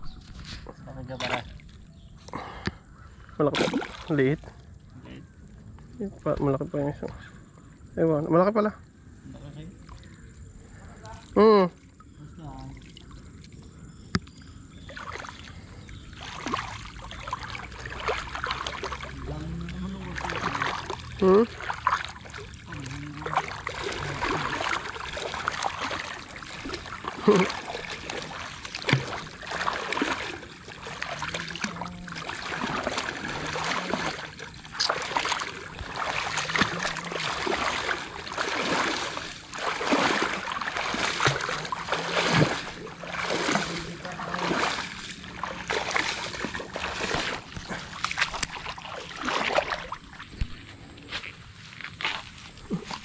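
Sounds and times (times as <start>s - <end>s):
person wading in water: 0.0s - 5.5s, 9.7s - 53.0s
fish thrashing in water: 3.6s - 4.2s, 12.8s - 50.8s.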